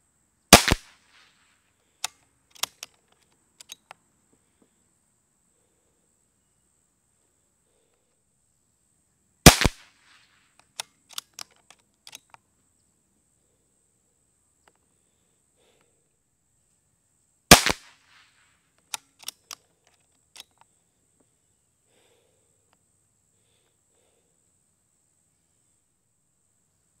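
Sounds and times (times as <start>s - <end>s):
air pistol shots: 0.5s - 1.3s, 9.4s - 10.2s, 17.5s - 19.4s
pistol action clicks: 0.6s - 1.0s, 2.0s - 4.0s, 9.5s - 12.4s, 17.5s - 18.2s, 18.8s - 20.7s.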